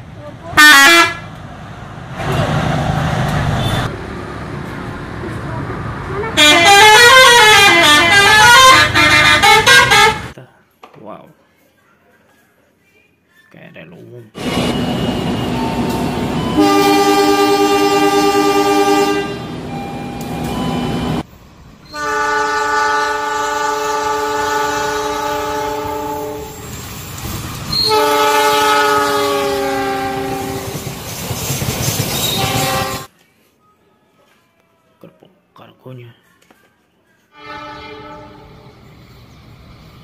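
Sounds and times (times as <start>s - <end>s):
locomotive horn blasts: 0.6s - 1.3s, 6.3s - 10.4s, 14.7s - 21.2s, 21.9s - 26.6s, 27.8s - 30.7s, 32.3s - 33.1s, 37.3s - 38.7s
train running: 14.4s - 33.1s.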